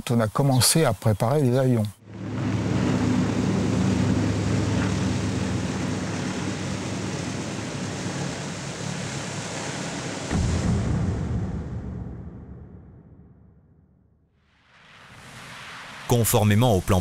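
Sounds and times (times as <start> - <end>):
jet engine roar: 2.0 - 12.6
low hum: 2.0 - 14.0.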